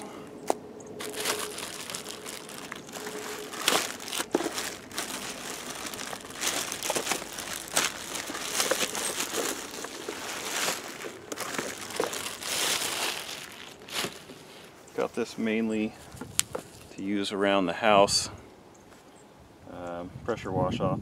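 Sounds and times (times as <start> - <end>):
plastic bag crinkling: 1.0 - 14.7.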